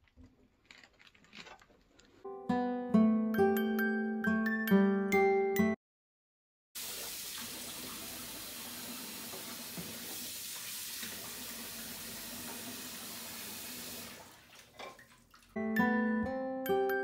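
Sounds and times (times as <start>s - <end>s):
faucet running: 6.8s - 14.6s
dishes being washed: 6.8s - 15.6s.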